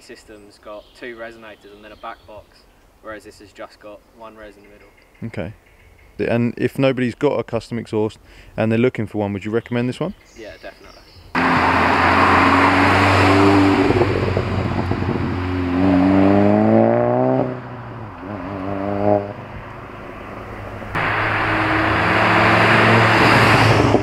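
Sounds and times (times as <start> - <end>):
road noise: 10.0 - 24.0
car engine accelerating past: 11.4 - 24.0.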